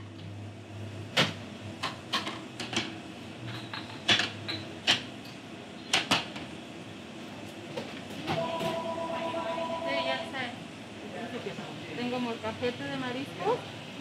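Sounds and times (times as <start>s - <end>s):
two-pitch tone: 8.3s - 10.6s.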